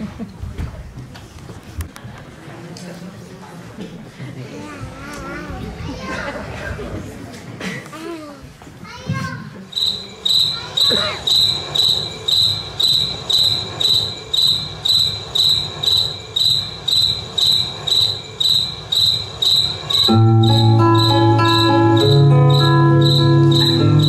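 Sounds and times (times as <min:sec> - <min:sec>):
low murmur of voices: 0:00.0 - 0:11.4
cricket chirping: 0:09.7 - 0:24.0.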